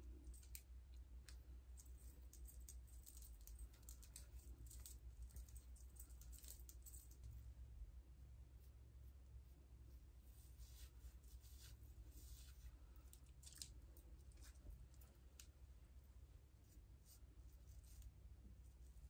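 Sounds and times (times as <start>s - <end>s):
light clicks and rustles: 0.0s - 7.5s, 12.3s - 15.6s
low steady hum: 0.0s - 19.0s.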